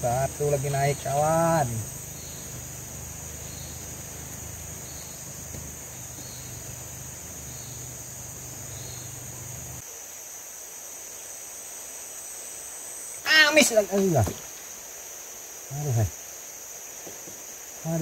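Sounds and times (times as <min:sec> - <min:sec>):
high-pitched insect chorus: 0:00.0 - 0:18.0
soft chirp: 0:02.0 - 0:09.8.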